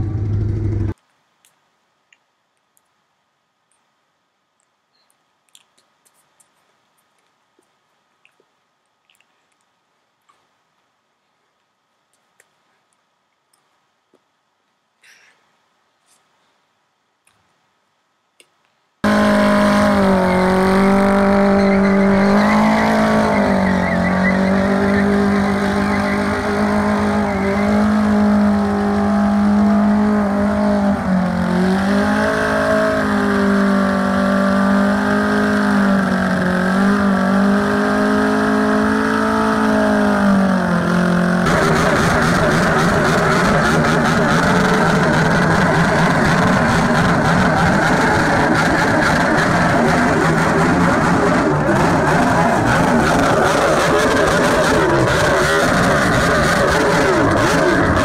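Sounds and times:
engine revving high: 0.0 - 1.0, 19.0 - 58.0.

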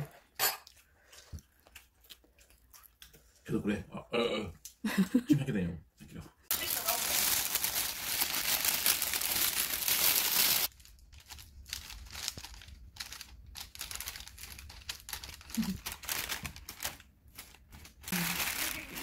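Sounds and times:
plastic bag crinkling: 6.5 - 19.0.

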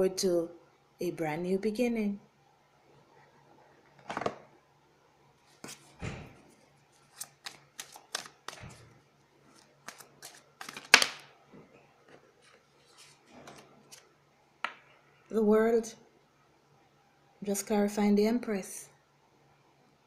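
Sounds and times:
cards clicking and tapping: 7.1 - 8.7, 9.8 - 11.3.

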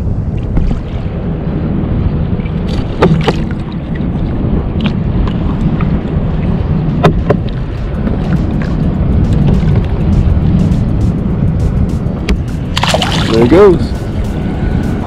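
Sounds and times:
sea water sloshing and gurgling: 0.0 - 10.0, 12.7 - 13.7
water splashes: 0.0 - 10.8, 12.2 - 15.0
wind rumble on microphone: 0.0 - 15.0.

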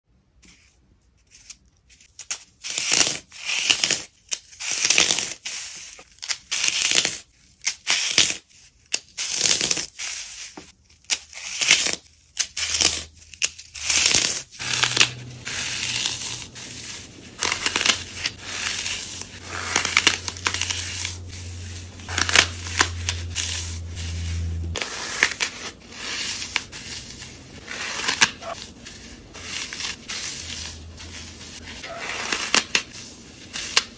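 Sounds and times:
floral foam crunching: 14.0 - 33.9
low hum: 14.6 - 24.9.

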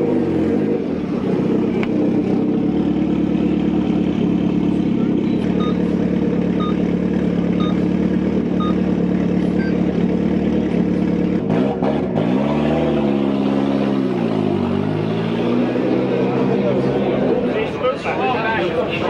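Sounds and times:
car engine idling and revving: 0.0 - 19.0
short beeps: 5.6 - 5.9, 6.6 - 6.8, 7.6 - 7.8, 8.6 - 8.8, 9.5 - 9.8.

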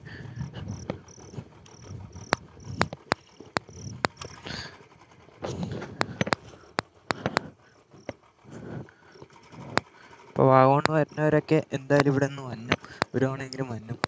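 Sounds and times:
crickets chirping: 0.0 - 4.7, 6.2 - 10.1, 10.9 - 13.5
low rumbles: 0.0 - 14.0
sharp clicks and knocks: 0.4 - 4.7, 5.4 - 14.0.

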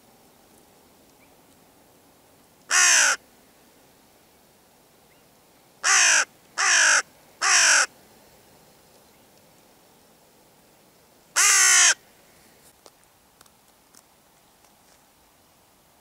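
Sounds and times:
crow cawing: 2.7 - 3.2, 5.8 - 7.9, 11.4 - 12.0.

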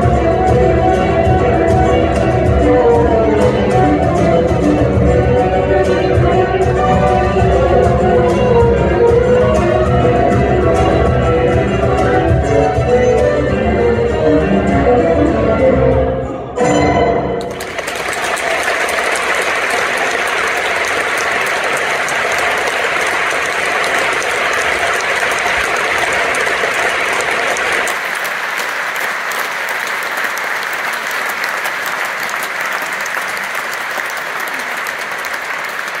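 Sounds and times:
audience applauding: 17.4 - 36.0.

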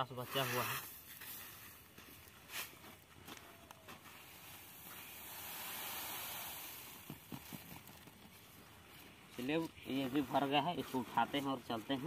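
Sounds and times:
grain rustling in winnowing basket: 0.0 - 7.1, 7.9 - 12.0.

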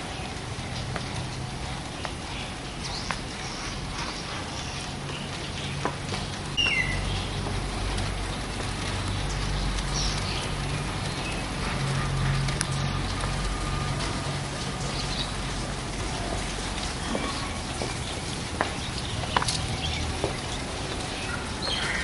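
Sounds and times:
traffic rumble: 0.0 - 22.0
bird chirps: 6.6 - 7.3.

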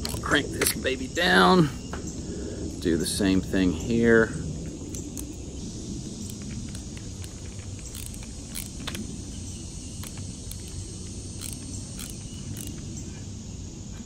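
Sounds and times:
low background rumble: 0.0 - 14.0
clamp clicking and ticking: 6.3 - 9.1, 10.0 - 12.8.

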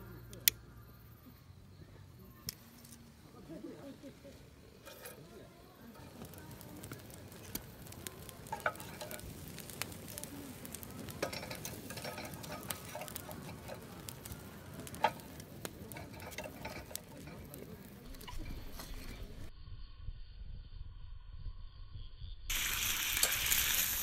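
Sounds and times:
wood fire crackling: 0.0 - 19.5, 22.5 - 24.0
firewood knocking in stove: 6.8 - 10.2.

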